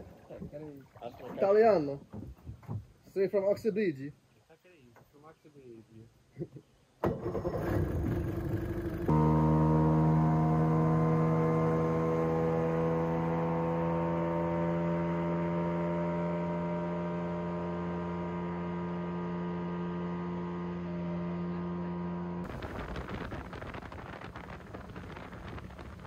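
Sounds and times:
outboard motor running: 7.2 - 26.0
wind buffeting microphone: 22.4 - 26.0.

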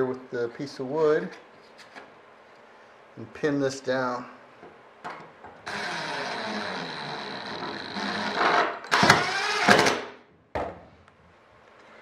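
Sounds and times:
impact driver driving a screw: 5.7 - 10.1.

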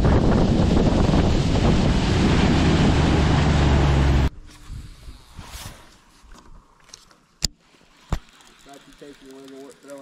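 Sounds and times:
wind buffeting microphone: 0.0 - 5.5
boat engine humming: 0.4 - 4.3.

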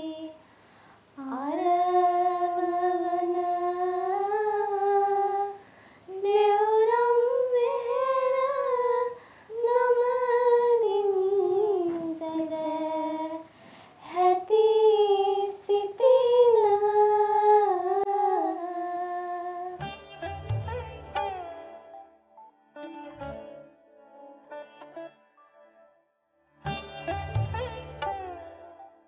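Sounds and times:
girls singing in unison: 0.0 - 0.4, 1.2 - 19.8.

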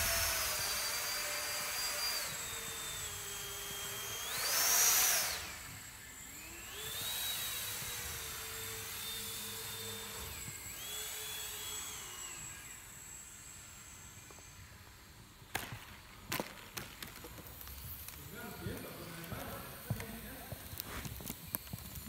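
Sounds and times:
electric ducted fan whining: 0.0 - 15.9.

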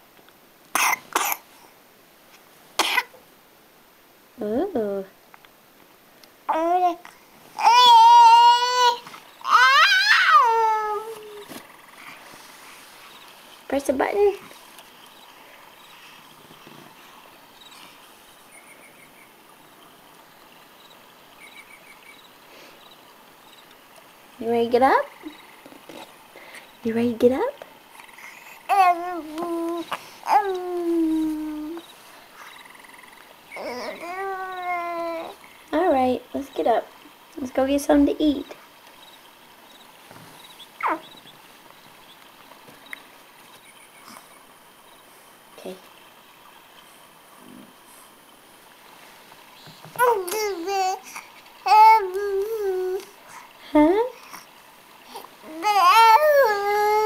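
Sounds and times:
room hiss: 0.0 - 57.0
toddler whining: 6.5 - 11.6, 28.0 - 31.8, 33.5 - 35.4, 40.8 - 41.1, 50.0 - 53.1, 55.1 - 57.0
faint high chirping pulses: 6.5 - 57.0
faint ticks: 41.6 - 44.5.

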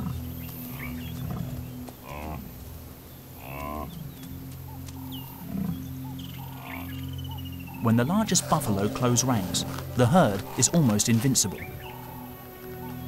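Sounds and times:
low steady drone: 0.0 - 13.0
buffalo bellowing: 5.3 - 13.0.

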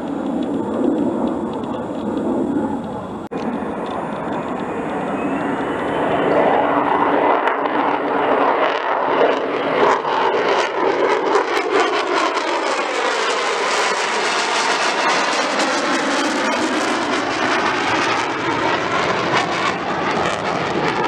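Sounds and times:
fighter jets roaring overhead: 0.0 - 21.0.

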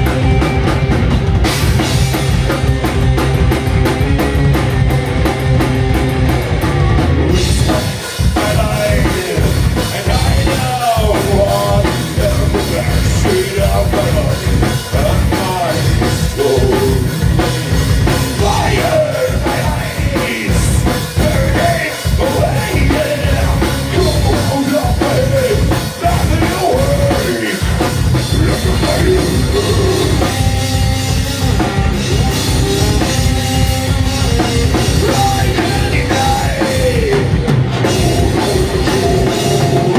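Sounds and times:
rock band playing: 0.0 - 39.9
person singing: 7.3 - 17.4, 18.3 - 30.5, 31.4 - 39.9.

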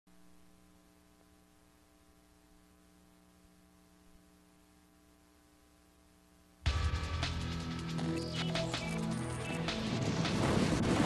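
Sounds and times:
faint electrical hum with hiss: 0.1 - 6.7.

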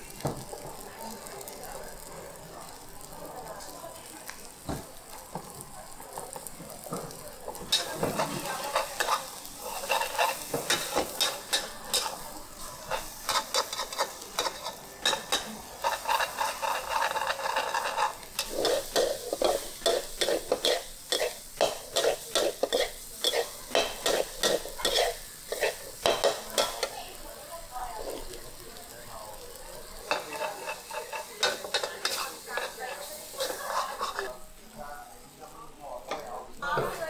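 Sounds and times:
food sizzling: 0.0 - 37.0
metal spatula scraping a wok: 7.6 - 26.9, 30.0 - 34.4.

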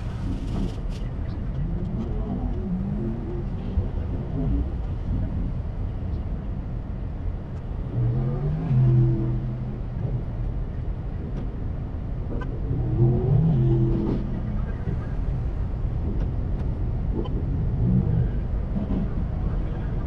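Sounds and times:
car engines idling: 13.9 - 20.0.

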